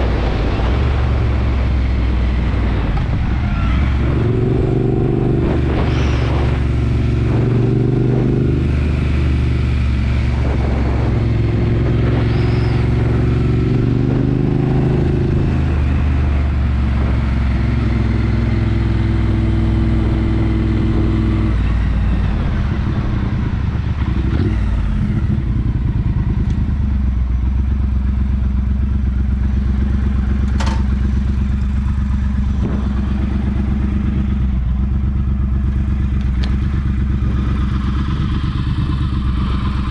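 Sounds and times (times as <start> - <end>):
motorcycle engine revving: 0.0 - 39.9
sharp click: 30.5 - 30.9.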